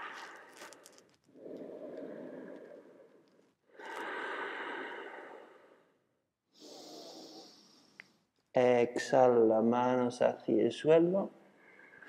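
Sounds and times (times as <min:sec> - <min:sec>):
person breathing slowly and deeply: 0:00.0 - 0:06.0, 0:06.6 - 0:08.0.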